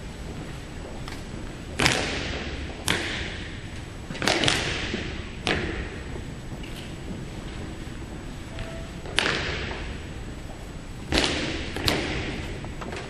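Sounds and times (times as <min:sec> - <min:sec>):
boots stamping on hard floor: 0:04.2 - 0:12.6.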